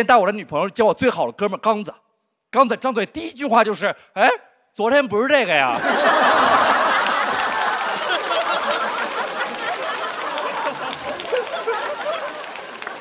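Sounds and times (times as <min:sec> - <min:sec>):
audience laughing: 0:05.7 - 0:13.0
people clapping: 0:05.8 - 0:13.0.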